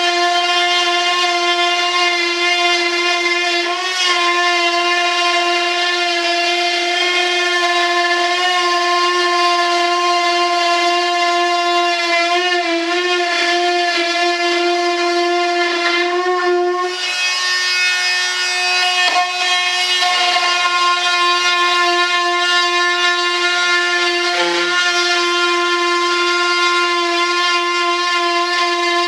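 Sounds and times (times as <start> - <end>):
rotary tool whining: 15.7 - 28.7.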